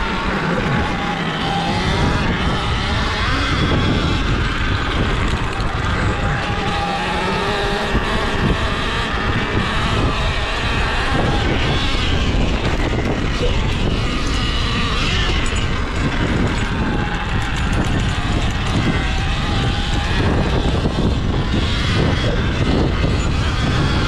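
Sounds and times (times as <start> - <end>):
electric motor whine: 0.0 - 24.0
wind rush on microphone: 0.0 - 24.0.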